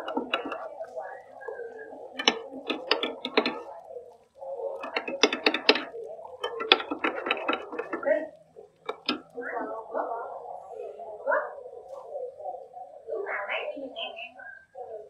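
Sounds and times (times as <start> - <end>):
ladle clinking against pot: 0.0 - 0.7, 2.2 - 3.7, 4.8 - 8.1, 8.9 - 9.3.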